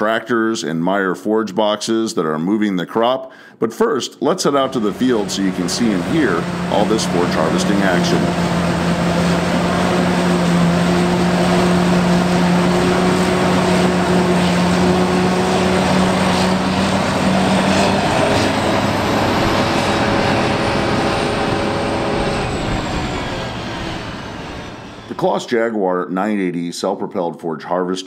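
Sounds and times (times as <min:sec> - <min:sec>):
forage harvester engine droning: 0:04.5 - 0:25.4.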